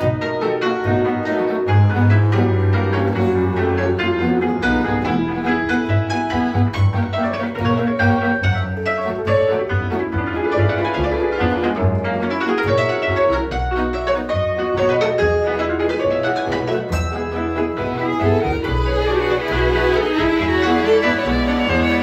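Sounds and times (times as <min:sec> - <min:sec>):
double bass notes: 0:00.0 - 0:22.0
violins and viola bowing: 0:01.5 - 0:22.0
hammered cimbalom: 0:16.9 - 0:18.4.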